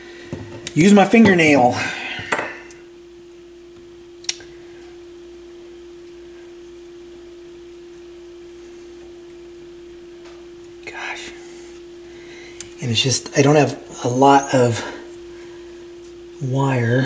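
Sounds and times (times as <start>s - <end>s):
steady pure tone: 0.0s - 17.0s
small sharp click: 4.2s - 4.5s.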